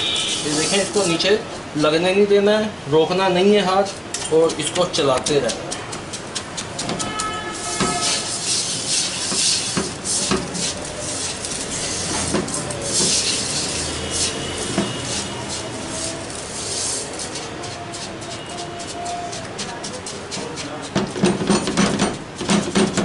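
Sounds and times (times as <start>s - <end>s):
spatula scraping in pan: 0.0s - 1.4s, 3.5s - 22.7s
spatula knocking against pan: 4.2s - 8.1s, 18.3s - 23.0s.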